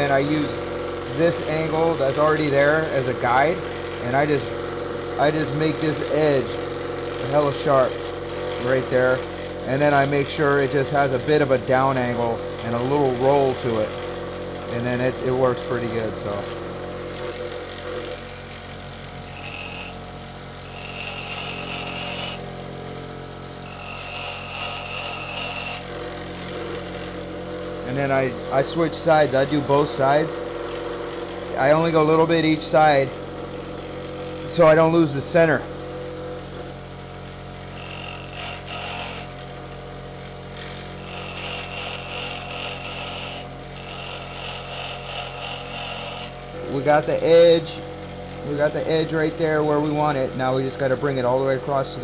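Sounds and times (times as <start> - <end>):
bench grinder motor hum: 0.0 - 51.0
drill bit hissing grind: 19.2 - 20.0, 20.6 - 22.4, 23.6 - 25.9, 37.7 - 39.3, 41.0 - 46.4.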